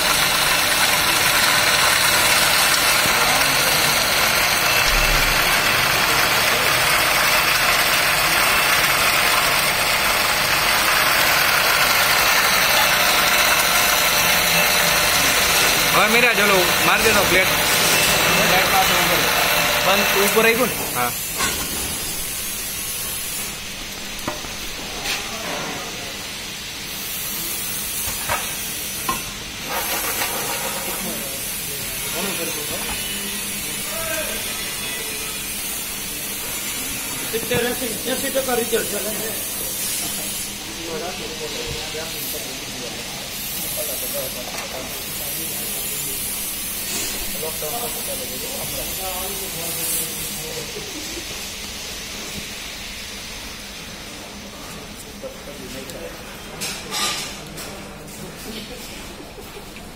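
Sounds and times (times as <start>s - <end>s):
garlic peeling machine running: 0.0s - 24.9s
machine running with steady hiss: 0.0s - 59.9s.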